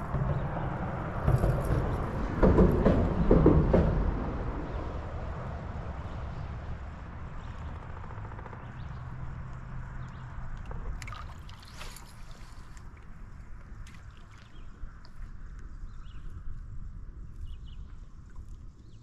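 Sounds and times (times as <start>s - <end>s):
water lapping against boat hull: 7.4s - 16.0s.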